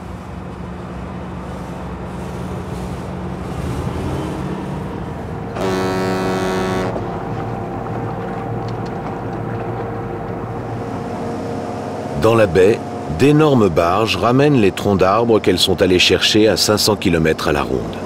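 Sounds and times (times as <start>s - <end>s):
boat engine rumble: 0.0s - 18.0s
ship's horn blast: 2.2s - 13.4s
steady hum: 4.8s - 15.9s.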